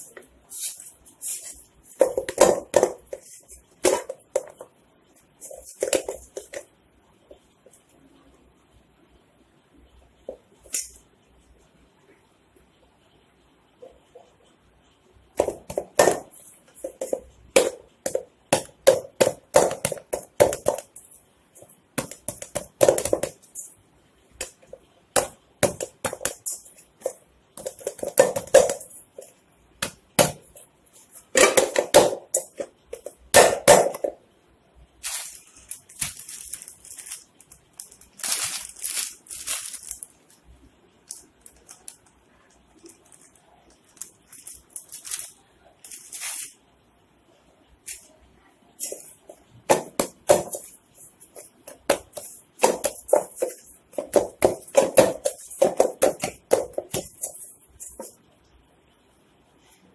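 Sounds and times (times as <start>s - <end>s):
plastic packet rustling: 35.0s - 42.1s, 42.8s - 46.6s.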